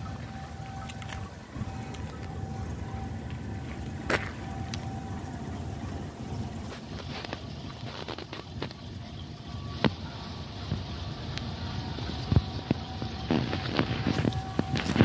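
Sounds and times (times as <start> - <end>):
footsteps on asphalt: 0.0 - 5.4
low steady rumble: 0.0 - 15.0.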